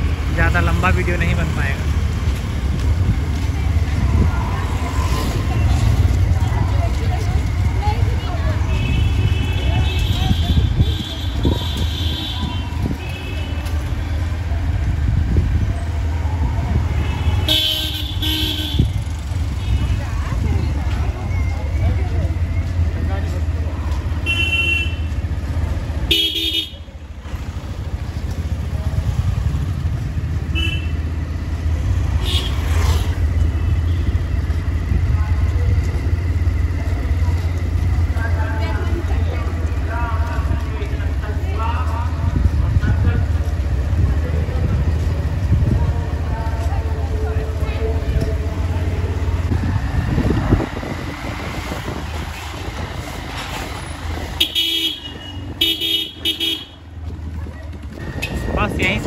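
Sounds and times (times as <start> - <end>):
motorcycle engine rumble: 0.0 - 59.0
road noise: 0.0 - 59.0
vehicle horn tooting: 54.4 - 56.8.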